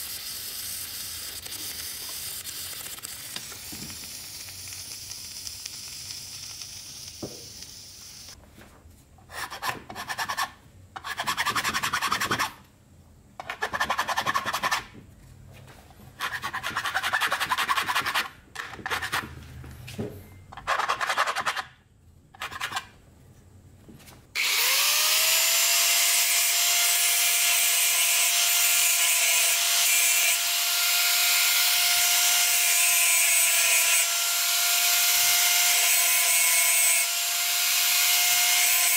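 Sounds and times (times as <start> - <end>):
angle grinder whining: 24.4 - 38.9.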